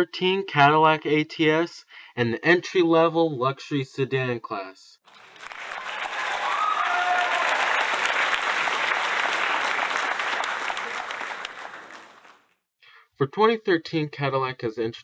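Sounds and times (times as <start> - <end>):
crowd applauding: 5.1 - 12.5.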